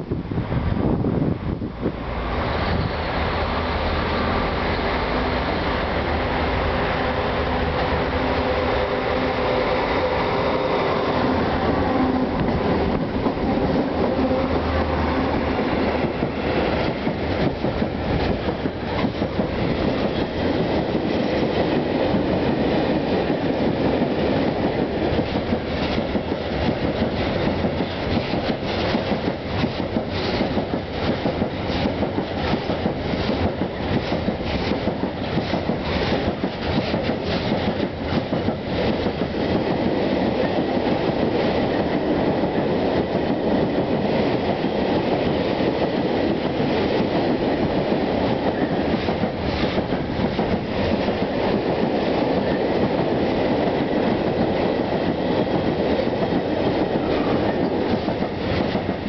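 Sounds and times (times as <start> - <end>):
locomotive droning past: 2.0 - 17.0.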